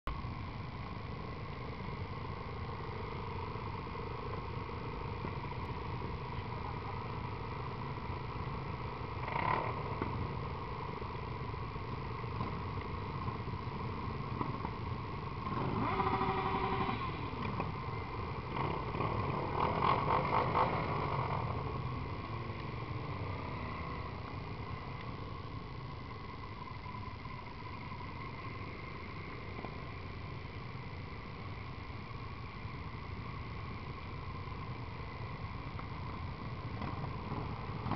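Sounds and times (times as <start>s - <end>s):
motorcycle engines rumbling: 0.1s - 37.9s
engine revving: 15.4s - 17.8s, 18.4s - 24.2s.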